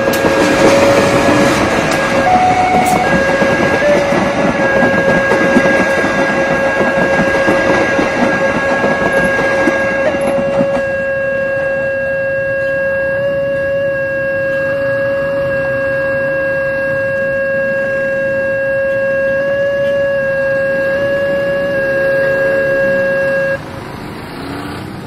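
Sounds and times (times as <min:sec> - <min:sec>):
train coaches rattling over rails: 0:00.0 - 0:11.8
level-crossing alarm steady tone: 0:00.0 - 0:23.6.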